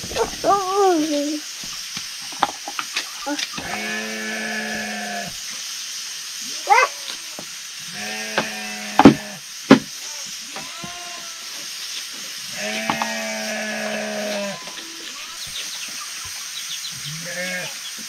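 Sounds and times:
steady hiss: 0.0s - 18.0s
sheep bleating: 3.6s - 5.4s, 6.4s - 9.4s, 10.0s - 11.6s, 12.5s - 15.4s, 17.0s - 17.8s
sharp knocks: 8.4s - 9.9s.

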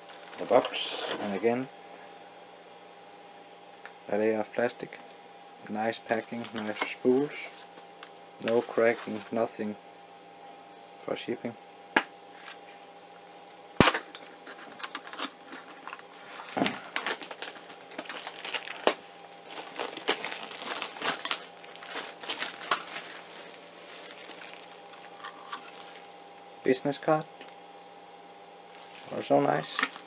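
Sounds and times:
plastic bag crinkling: 0.0s - 1.4s, 13.9s - 26.2s, 28.7s - 30.0s.

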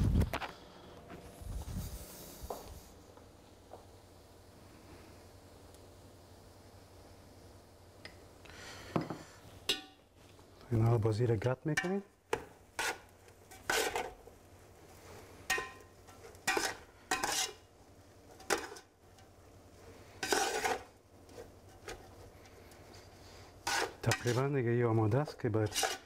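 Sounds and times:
metal spoon scraping a pot: 12.8s - 14.2s, 15.5s - 17.6s, 18.3s - 19.3s, 20.2s - 20.9s, 23.6s - 24.5s, 25.6s - 26.0s.

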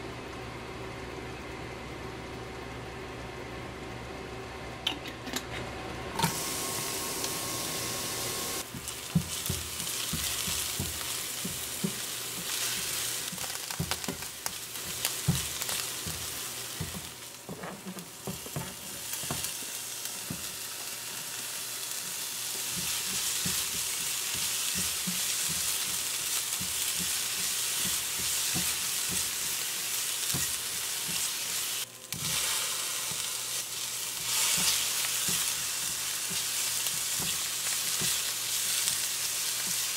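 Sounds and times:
vegetables sizzling in oil: 6.2s - 39.9s
spatula scraping a pan: 8.7s - 19.5s.

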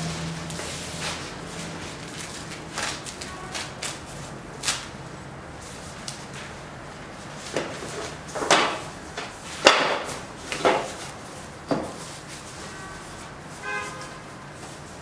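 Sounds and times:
plastic wrapping rustling: 0.0s - 4.9s.

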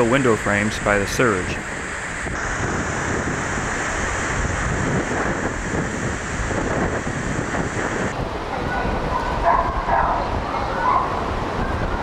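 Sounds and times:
strong wind buffeting microphone: 0.0s - 12.0s.

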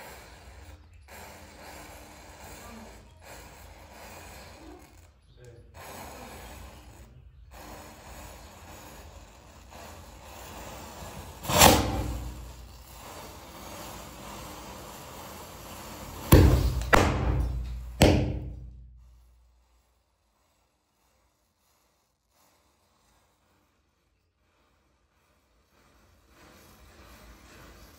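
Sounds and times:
burning matchstick trail hissing: 0.0s - 27.9s
firecrackers bursting: 5.8s - 19.9s.

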